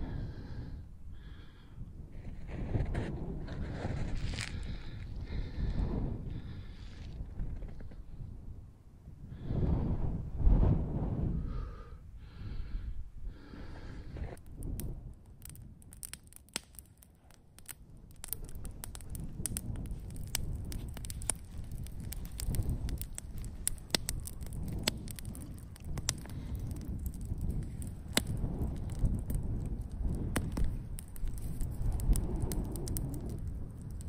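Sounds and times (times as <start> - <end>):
campfire crackling: 0.0 - 8.3, 10.4 - 34.0
sharp pops from fire: 14.1 - 34.0.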